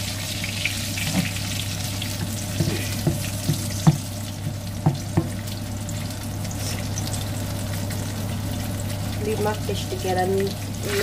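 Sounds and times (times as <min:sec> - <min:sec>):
extractor fan hum: 0:00.0 - 0:11.0
fish sizzling in a pan: 0:00.0 - 0:11.0
spatula knocking pan: 0:02.2 - 0:05.4.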